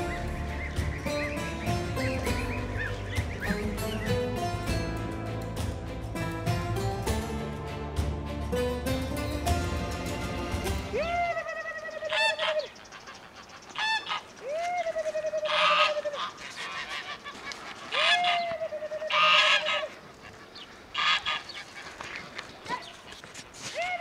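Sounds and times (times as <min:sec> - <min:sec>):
geese honking: 0:00.0 - 0:04.8, 0:11.0 - 0:22.8.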